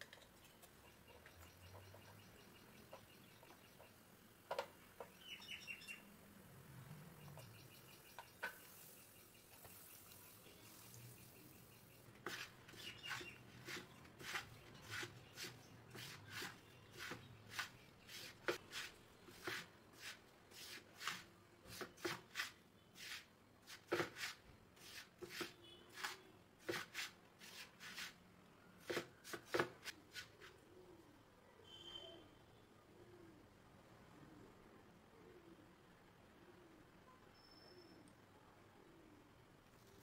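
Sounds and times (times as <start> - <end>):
mixture scraped in a pan: 12.2 - 28.2.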